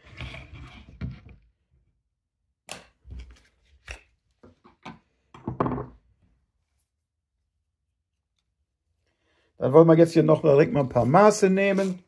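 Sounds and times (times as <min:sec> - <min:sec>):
knife knocking on wooden table: 0:05.4 - 0:06.0.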